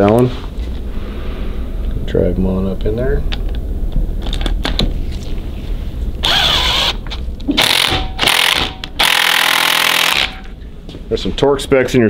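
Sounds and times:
impact wrench bursts: 6.2s - 10.5s.

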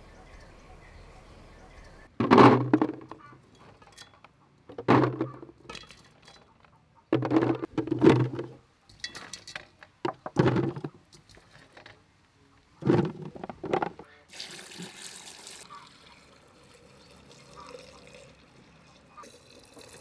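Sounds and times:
fruits clattering into plastic jar: 2.2s - 4.1s, 4.7s - 6.4s, 7.2s - 12.0s, 12.8s - 14.0s.

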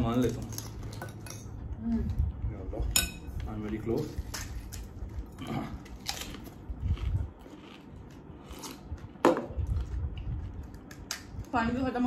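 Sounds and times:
chewing: 4.4s - 11.2s.

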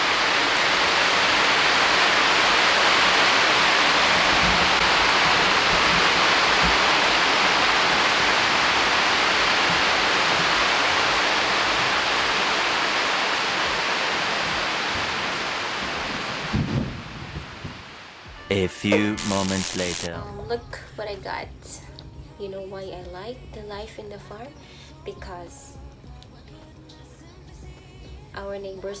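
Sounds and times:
heavy rain pouring: 0.0s - 18.6s, 19.2s - 20.1s.

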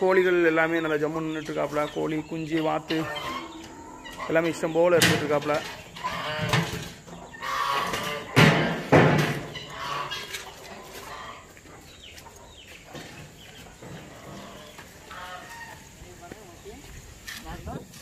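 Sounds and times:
loud poultry calls: 0.0s - 16.1s
chickens clucking: 0.0s - 18.0s.

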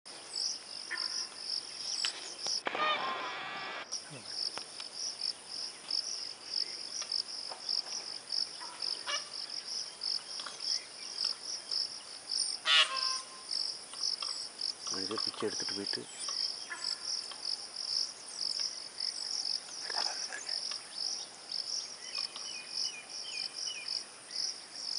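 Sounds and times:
insect chirping: 0.1s - 24.9s
brief pitched calls: 2.6s - 3.9s.

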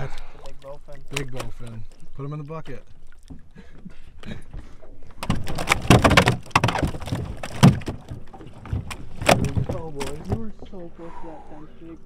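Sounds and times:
fish thumping in a bucket: 5.2s - 10.5s.

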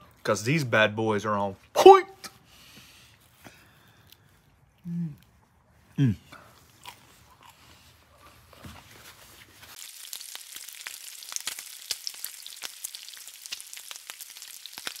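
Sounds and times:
bacon sizzling on a griddle: 9.7s - 15.0s.

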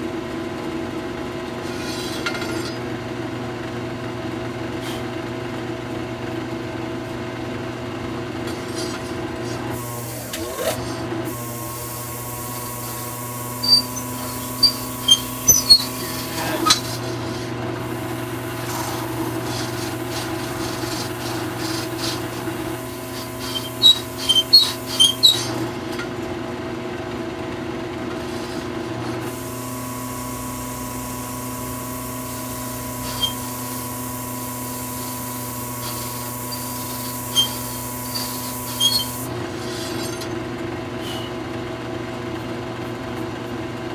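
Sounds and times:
drill press motor hum: 1.1s - 43.5s
sanding pad scraping metal: 1.6s - 2.9s, 8.4s - 26.1s, 28.1s - 40.4s.

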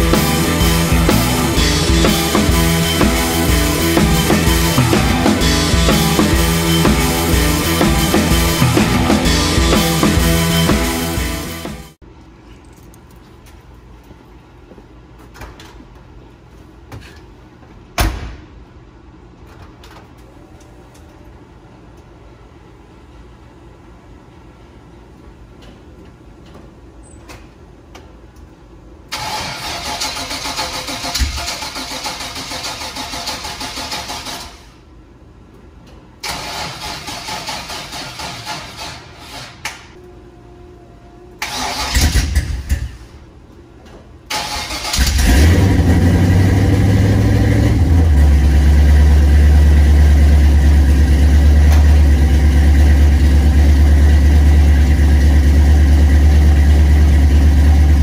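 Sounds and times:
engine cranking on starter: 29.1s - 34.8s, 36.2s - 39.9s, 41.4s - 43.0s, 44.3s - 48.8s.

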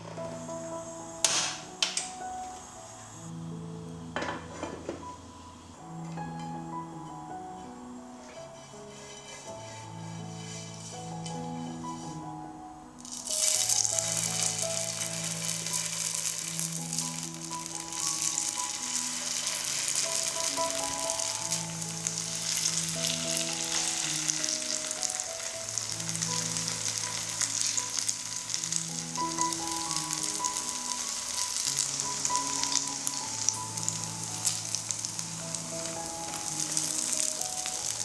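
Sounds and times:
soft background music: 0.0s - 38.0s
food sizzling in oil: 8.2s - 38.0s.

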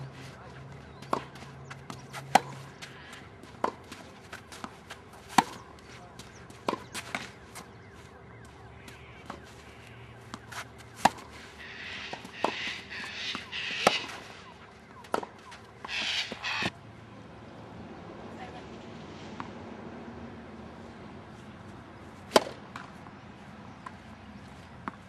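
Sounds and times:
tennis ball bouncing on court: 0.9s - 7.8s, 10.2s - 16.0s, 22.3s - 23.1s, 24.8s - 25.0s
tennis ball struck by racket: 1.0s - 5.7s, 6.6s - 7.7s, 10.2s - 15.5s, 22.3s - 22.9s.

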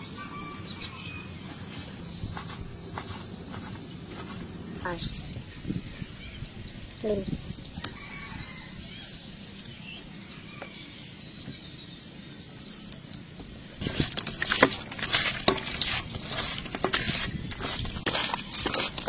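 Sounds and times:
wet squelching of hand mixing: 13.8s - 19.0s.

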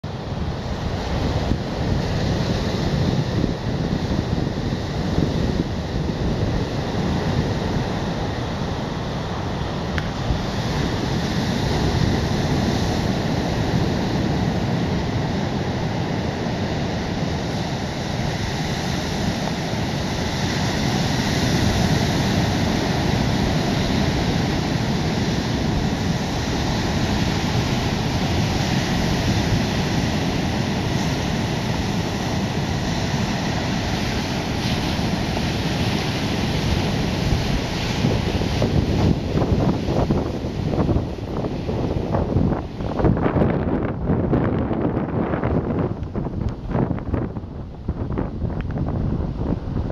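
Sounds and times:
ocean surf breaking on beach: 0.0s - 49.9s
wind buffeting microphone: 0.0s - 49.9s.

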